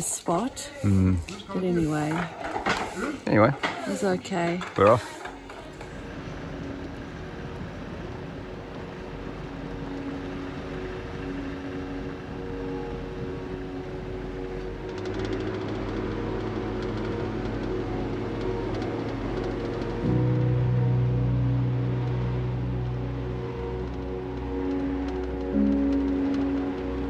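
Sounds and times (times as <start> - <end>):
tyres on gravel: 1.3 - 6.0
car engine hum: 4.0 - 27.0.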